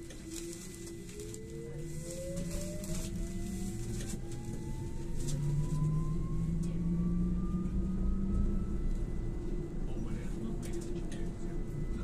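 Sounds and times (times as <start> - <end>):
electric motor whine rising: 0.0 - 9.8
trolleybus hum and rumble: 0.0 - 12.0.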